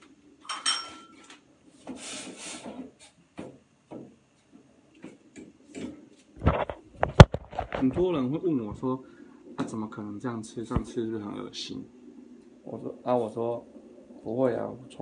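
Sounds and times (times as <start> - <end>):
metal ladle clinking on pot: 0.5 - 1.1.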